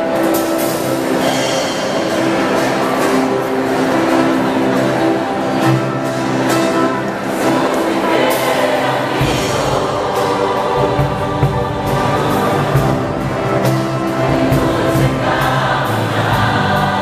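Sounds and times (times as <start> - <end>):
choir singing: 0.0 - 17.0
live band playing: 0.0 - 17.0.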